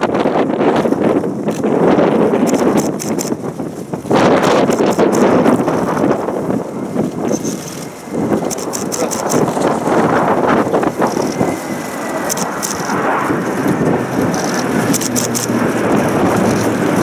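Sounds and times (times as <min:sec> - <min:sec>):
aircraft engines rumbling overhead: 0:00.0 - 0:17.0
low hum: 0:00.0 - 0:17.0.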